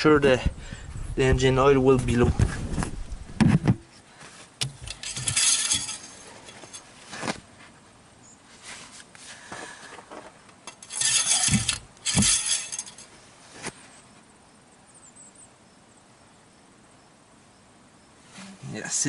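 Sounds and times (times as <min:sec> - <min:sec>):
metallic clinking and scraping: 0:04.6 - 0:07.2, 0:10.6 - 0:13.2.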